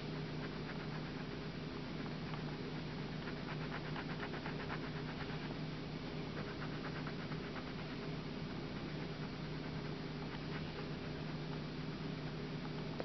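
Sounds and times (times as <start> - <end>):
steady low hum: 0.0 - 13.0
pencil scratching on paper: 2.8 - 5.6, 6.2 - 11.5.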